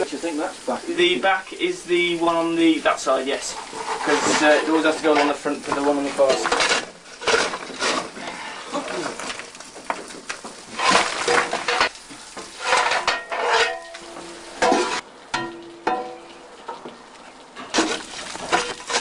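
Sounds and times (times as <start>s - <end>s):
coal clattering: 0.0s - 17.0s, 17.6s - 19.0s
shovel scraping coal: 3.4s - 9.5s, 10.2s - 15.0s, 17.7s - 19.0s.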